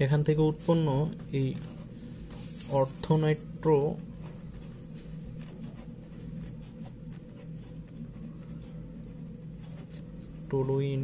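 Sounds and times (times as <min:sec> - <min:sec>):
steady low hum: 0:00.0 - 0:11.0
pen scratching on paper: 0:04.2 - 0:10.8.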